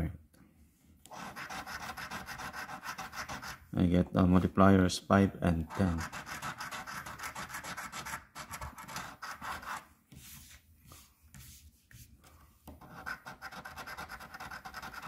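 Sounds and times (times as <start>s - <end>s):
coin scratching a ticket: 1.1s - 3.6s, 5.7s - 9.8s, 12.8s - 15.0s.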